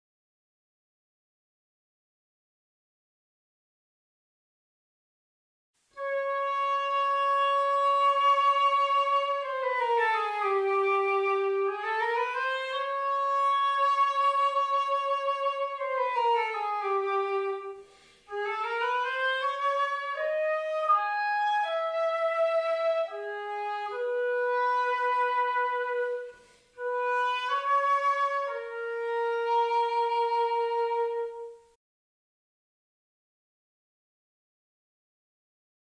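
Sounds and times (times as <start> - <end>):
solo woodwind melody: 5.9 - 31.8.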